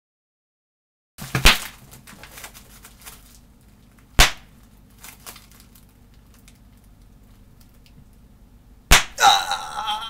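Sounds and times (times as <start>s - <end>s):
slap on desk: 8.9s - 9.2s.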